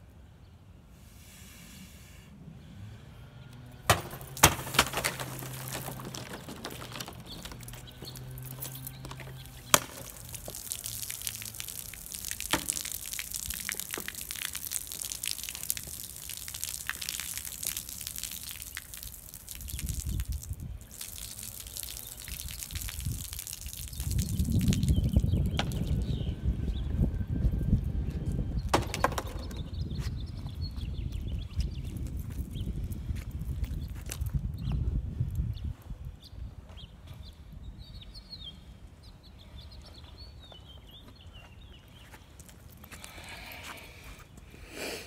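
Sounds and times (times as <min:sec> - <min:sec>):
blade chopping plastic bottles: 0:03.9 - 0:10.6
soda gushing and splashing: 0:04.0 - 0:25.9.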